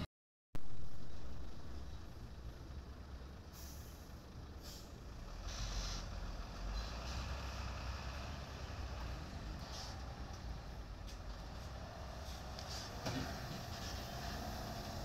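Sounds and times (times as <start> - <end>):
diesel truck engine running low: 0.6 - 15.0
air brake hisses: 3.5 - 6.1.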